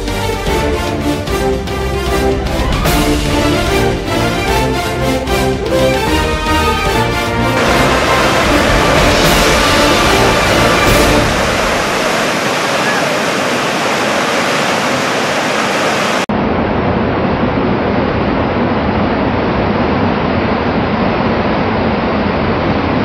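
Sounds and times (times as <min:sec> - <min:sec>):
music: 0:00.0 - 0:12.0
whitewater rapids rushing: 0:05.9 - 0:16.3.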